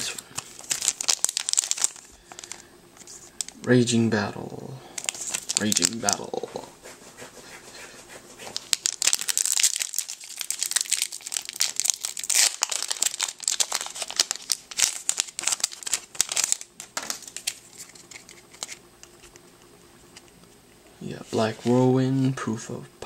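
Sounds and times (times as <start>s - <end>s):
foil wrapper crinkling and tearing: 0.0s - 3.6s, 5.0s - 6.5s, 8.5s - 19.4s.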